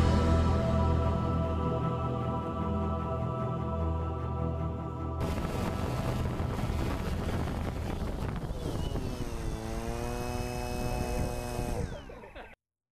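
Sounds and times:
steady stacked tone: 0.0s - 8.6s
drone propellers buzzing: 5.2s - 12.6s.

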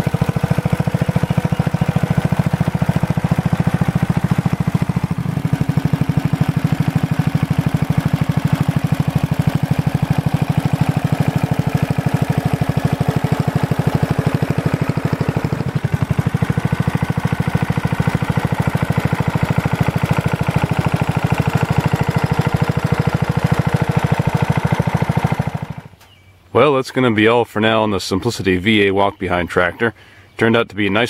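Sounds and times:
single-cylinder engine running: 0.0s - 26.0s.

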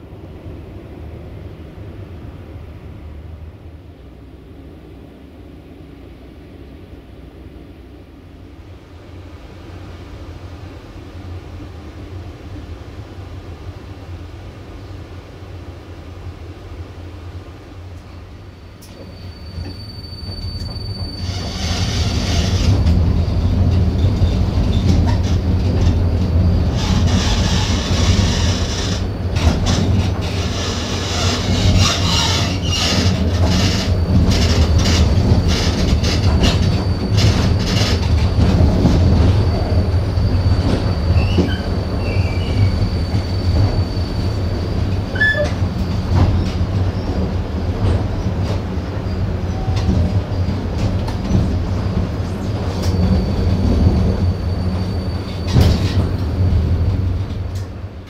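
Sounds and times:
tram wheels rumbling on rail: 0.0s - 58.0s
clicks and rattles from track: 26.7s - 39.0s.

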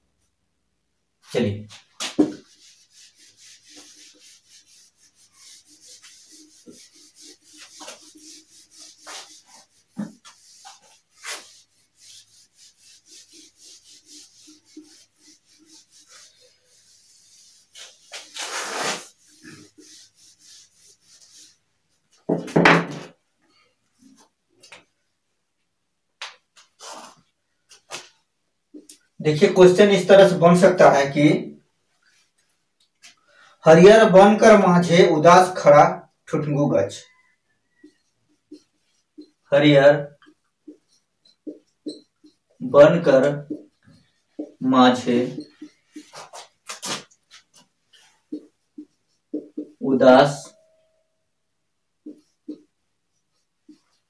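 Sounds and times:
duster rubbing whiteboard: 1.7s - 21.6s, 37.8s - 39.5s, 40.1s - 50.6s, 52.0s - 54.0s.

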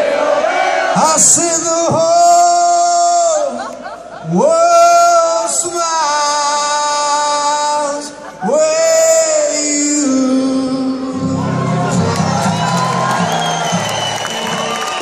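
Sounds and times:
person singing through pa: 4.3s - 12.1s
acoustic guitar: 8.6s - 14.8s.

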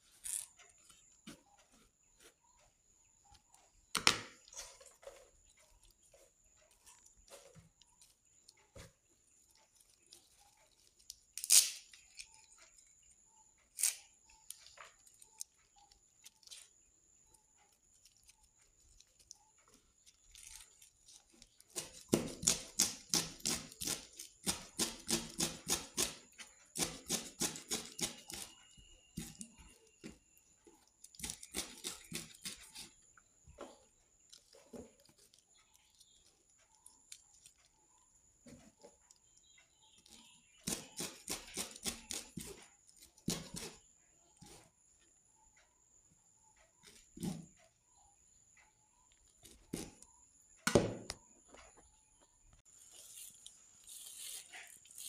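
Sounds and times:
leaves tearing by hand: 11.4s - 11.8s
knife chopping on plastic board: 21.7s - 30.2s, 31.2s - 32.9s, 40.6s - 42.6s, 43.2s - 43.8s, 50.6s - 51.2s.

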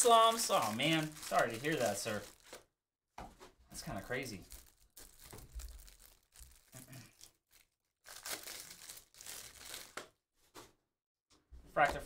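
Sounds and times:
trading cards rustling: 0.0s - 2.7s, 3.9s - 10.1s.

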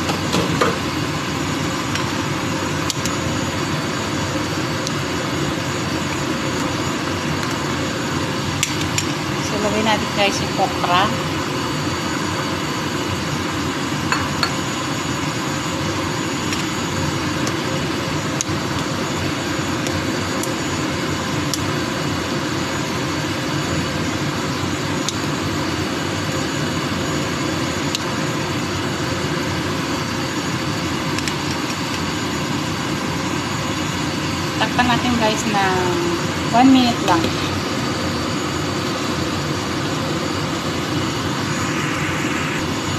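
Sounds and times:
soup boiling and bubbling: 0.0s - 9.4s.

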